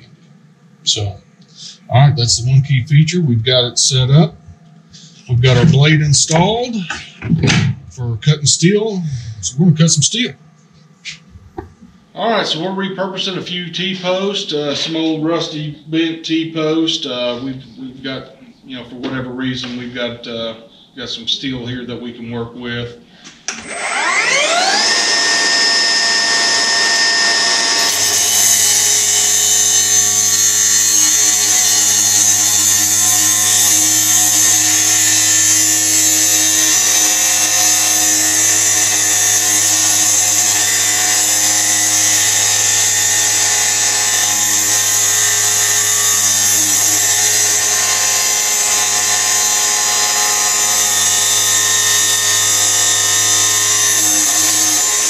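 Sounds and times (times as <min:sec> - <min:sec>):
cut-off saw whining: 0:23.5 - 0:55.0
saw blade grinding through steel: 0:23.6 - 0:55.0.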